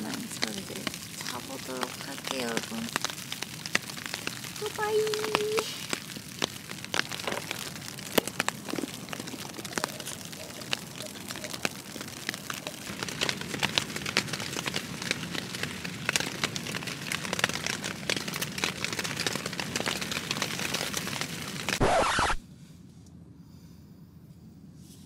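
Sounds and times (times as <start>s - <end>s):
rain pattering on tent: 0.0s - 22.4s
short loud rush: 21.8s - 22.4s.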